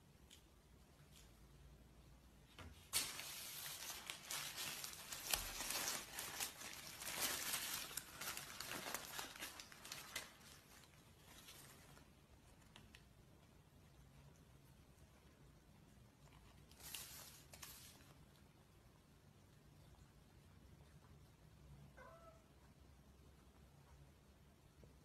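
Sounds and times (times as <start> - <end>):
paper wrapper crinkling and tearing: 2.8 - 12.1, 16.2 - 18.1.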